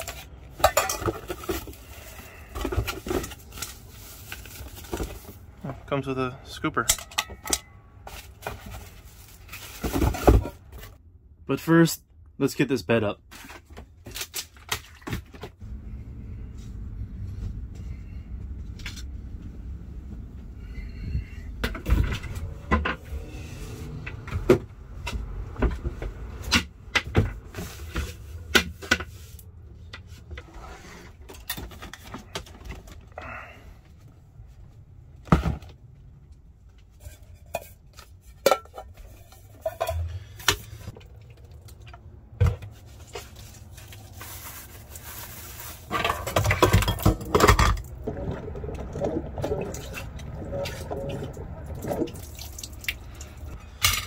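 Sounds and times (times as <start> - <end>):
dishes and utensils clattering: 0.0 - 1.7, 6.8 - 8.9, 37.0 - 40.8, 45.9 - 48.4.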